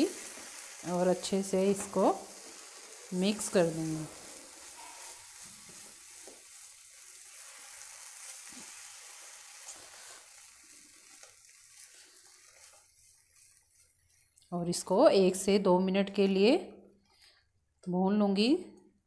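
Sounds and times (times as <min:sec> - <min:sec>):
paste sizzling in oil: 0:00.0 - 0:14.5
spatula scraping pan: 0:03.5 - 0:14.4.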